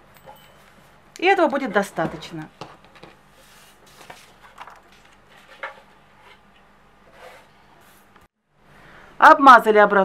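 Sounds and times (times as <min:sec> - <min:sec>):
paper rustling: 0:02.9 - 0:05.9.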